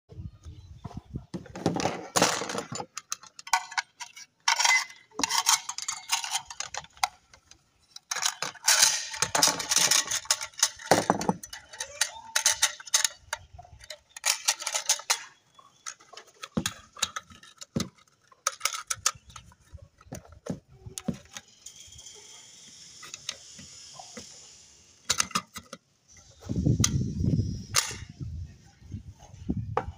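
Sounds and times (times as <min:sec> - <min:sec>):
metallic clicks and scrapes: 0:01.8 - 0:29.6.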